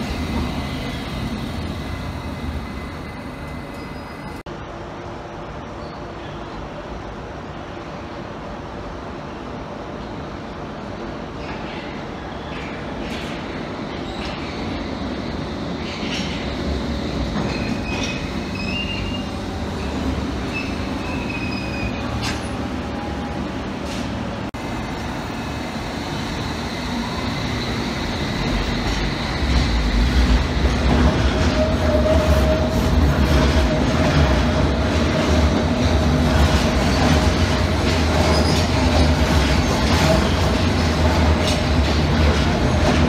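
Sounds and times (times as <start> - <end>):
train wheels rumbling on rail: 0.0 - 4.5, 9.8 - 43.0
high wheel squeals: 17.5 - 22.1.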